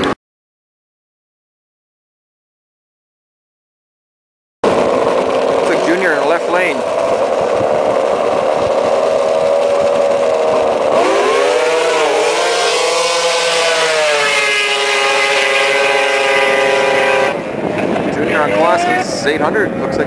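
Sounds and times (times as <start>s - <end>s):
racing snowmobile engines revving: 4.6s - 20.0s.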